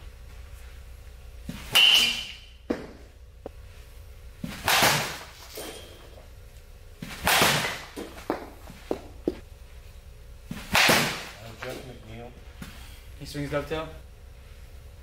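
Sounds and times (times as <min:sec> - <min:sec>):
baseball bat hitting balls: 0:01.4 - 0:03.2, 0:04.4 - 0:06.4, 0:07.0 - 0:09.4, 0:10.5 - 0:11.9.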